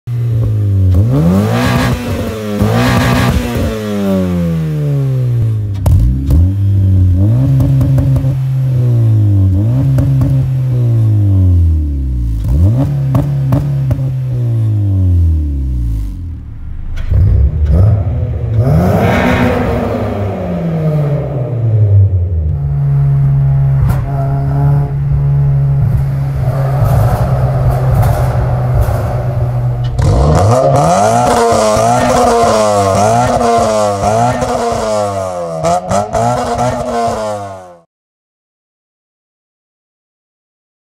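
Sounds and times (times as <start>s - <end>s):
car engine revving: 0.1s - 37.8s
exhaust crackle: 15.1s - 35.5s
exhaust pops: 23.5s - 33.7s.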